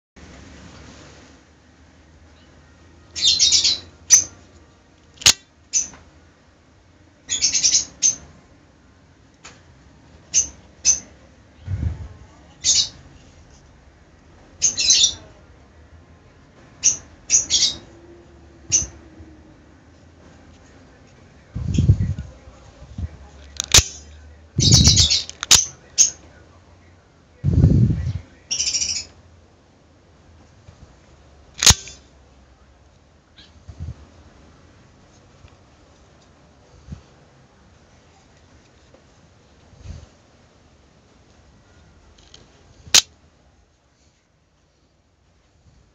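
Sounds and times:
birds chirping: 0:23.7 - 0:26.2
knife blade snapping out: 0:31.6 - 0:32.0.

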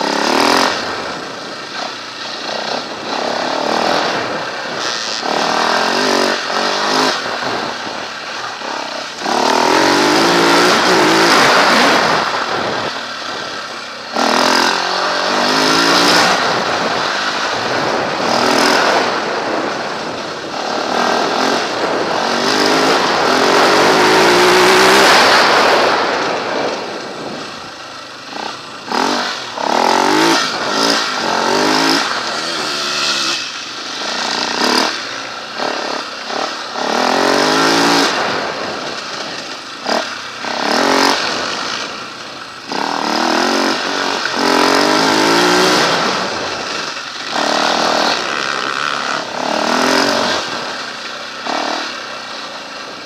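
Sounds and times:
wind noise: 0:00.0 - 0:50.9
motorcycle engine revving: 0:00.0 - 0:53.0.

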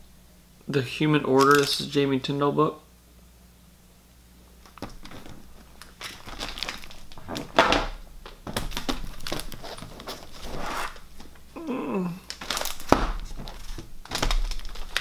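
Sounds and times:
plastic bags crinkling and rustling: 0:04.6 - 0:15.0.

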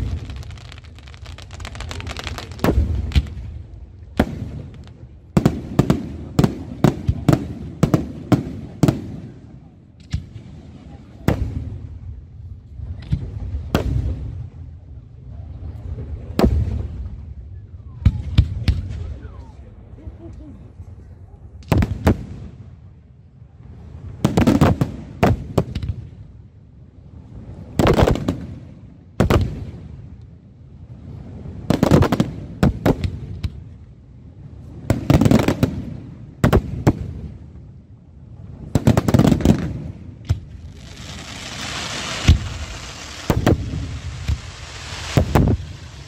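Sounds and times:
firework crackling hiss: 0:00.0 - 0:03.5, 0:38.8 - 0:46.0
firework shells bursting: 0:38.8 - 0:46.0.

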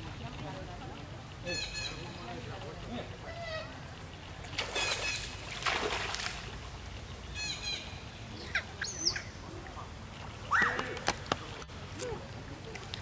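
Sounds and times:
water splashing: 0:00.0 - 0:13.0
macaques squealing and chirping: 0:08.4 - 0:09.3.

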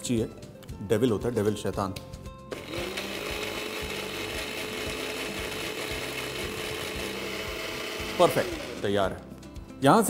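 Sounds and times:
electric blender running: 0:02.5 - 0:09.2.

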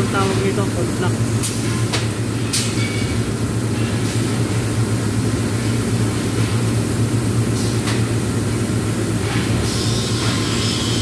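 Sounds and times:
electrical hum: 0:00.0 - 0:02.6
welding machinery noise: 0:00.0 - 0:11.0.

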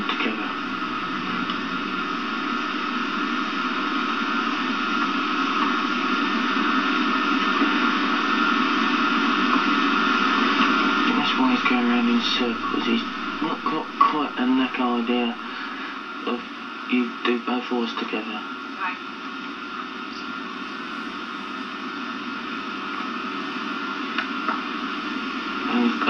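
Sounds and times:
low hum: 0:00.0 - 0:17.5
steady hiss: 0:00.0 - 0:26.0.

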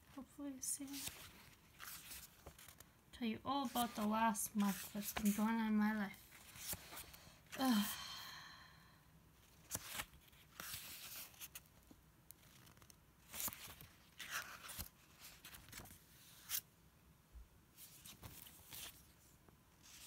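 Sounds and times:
book pages turning: 0:00.8 - 0:02.9, 0:03.6 - 0:07.5, 0:09.4 - 0:16.7, 0:17.8 - 0:20.0.

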